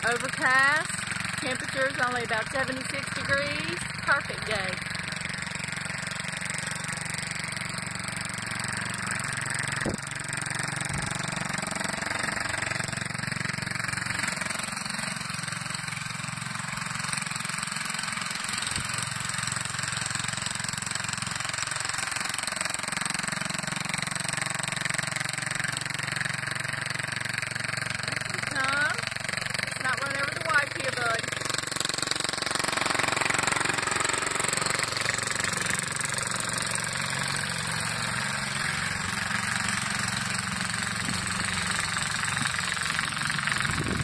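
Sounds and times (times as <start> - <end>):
small garden tractor engine running: 0.0 - 44.0.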